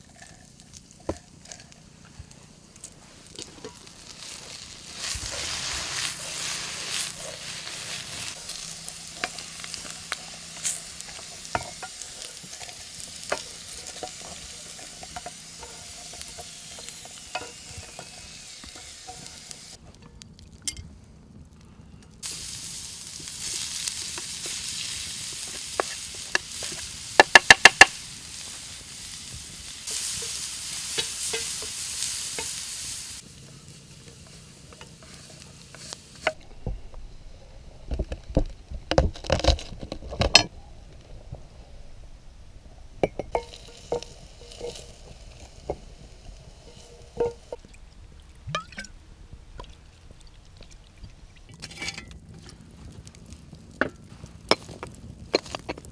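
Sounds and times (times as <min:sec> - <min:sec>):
vegetables sizzling in a pan: 0:00.0 - 0:19.8, 0:22.2 - 0:48.2, 0:49.0 - 0:55.9
wooden spatula scraping: 0:02.9 - 0:19.8.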